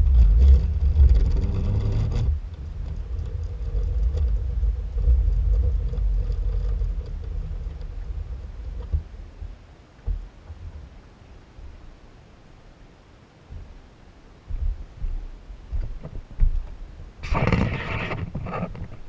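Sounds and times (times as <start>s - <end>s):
wind buffeting microphone: 0.0s - 11.9s.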